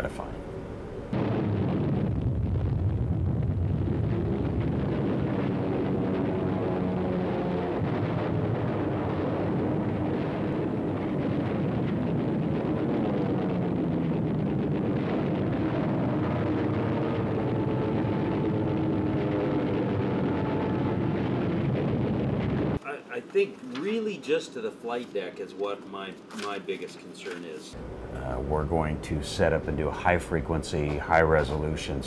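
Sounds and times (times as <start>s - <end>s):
aircraft engines droning: 27.8s - 31.7s.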